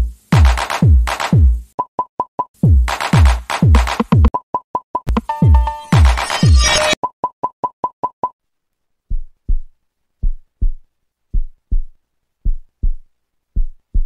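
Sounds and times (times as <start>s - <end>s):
heartbeat low thumps: 2.6s - 4.3s, 9.1s - 14.0s
short electronic beeps: 5.2s - 7.0s.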